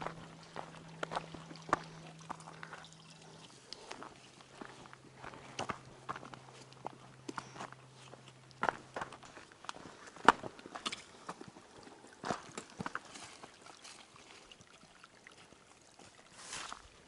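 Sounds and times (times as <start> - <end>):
footsteps on stony trail: 0.0 - 13.5.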